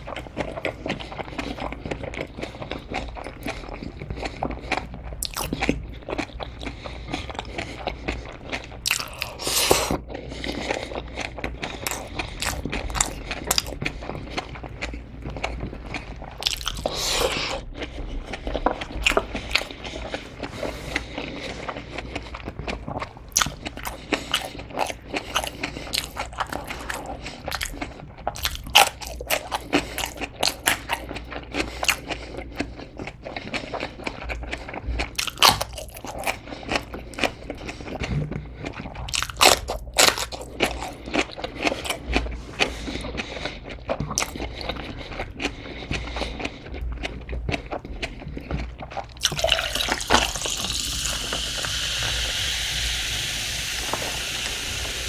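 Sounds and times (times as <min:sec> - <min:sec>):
chewing and crunching food: 0:00.0 - 0:55.0
soda pouring and fizzing: 0:49.4 - 0:55.0.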